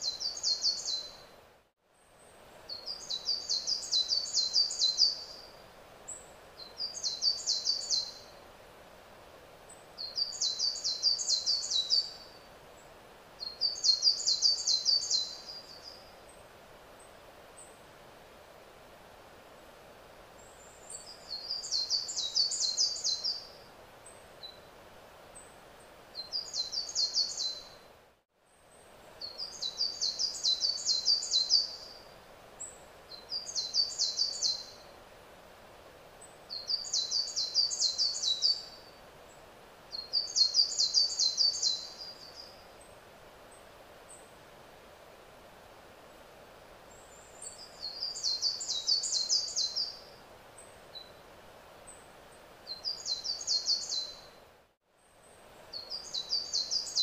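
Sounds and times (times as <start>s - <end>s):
songbird singing high phrase: 0.0s - 1.2s, 2.7s - 5.5s, 6.6s - 8.3s, 10.0s - 12.4s, 13.4s - 16.1s, 20.6s - 23.5s, 26.2s - 27.8s, 29.2s - 34.8s, 36.5s - 38.9s, 39.9s - 42.6s, 47.1s - 50.1s, 52.7s - 54.3s, 55.7s - 57.0s
faint background noise: 0.0s - 57.0s.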